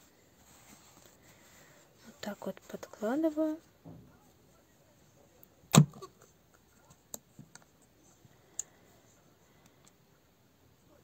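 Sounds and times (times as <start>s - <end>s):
faint clicks and taps: 6.5s - 7.9s.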